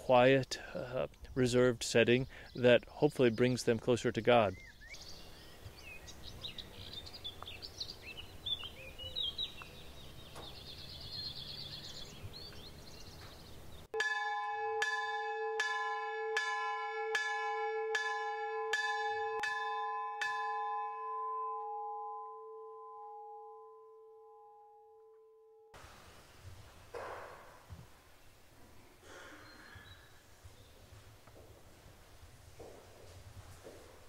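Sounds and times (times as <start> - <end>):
birds chirping: 0.0 - 14.0, 28.1 - 31.0
church bell striking: 14.0 - 25.8.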